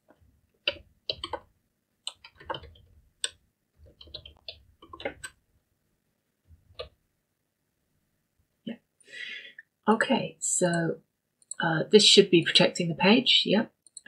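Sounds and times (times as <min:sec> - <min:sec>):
keyboard typing: 0:00.0 - 0:05.4, 0:06.7 - 0:07.0.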